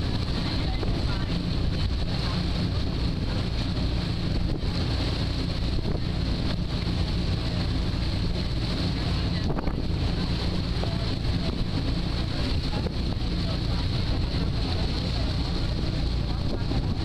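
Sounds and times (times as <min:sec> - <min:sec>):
ferry engine humming: 0:00.0 - 0:17.0
water rushing from wake: 0:00.0 - 0:17.0
wind on microphone: 0:00.0 - 0:17.0.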